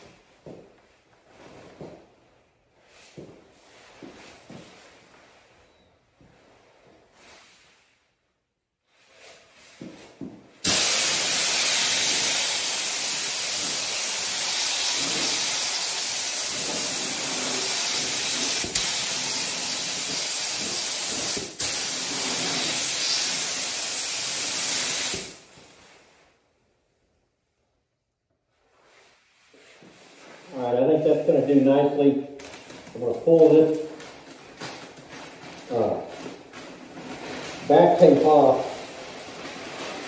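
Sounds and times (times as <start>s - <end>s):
paint spray gun hissing: 10.6s - 25.4s.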